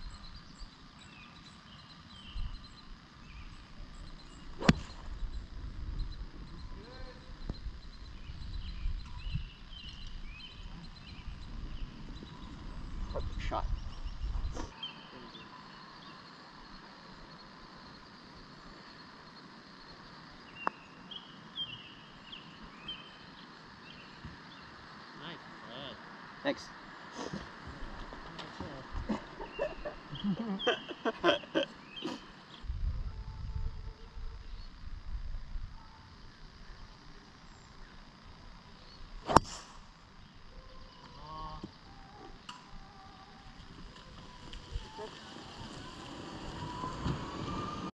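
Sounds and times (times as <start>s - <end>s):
bird chirping: 0.0s - 24.8s, 28.6s - 32.7s
quiet outdoor ambience: 0.0s - 47.9s
putter striking golf ball: 4.6s - 5.1s, 39.2s - 39.6s.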